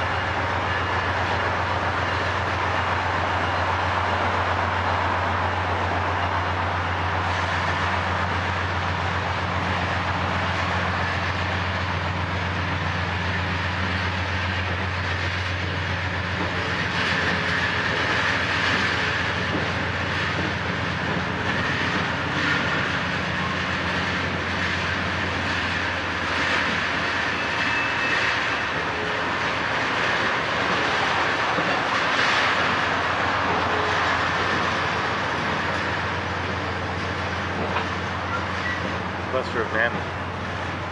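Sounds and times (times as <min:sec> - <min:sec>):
train low drone: 0:00.0 - 0:40.9
train wheels rolling: 0:00.0 - 0:40.9
wheels clicking over rail joints: 0:28.8 - 0:40.9.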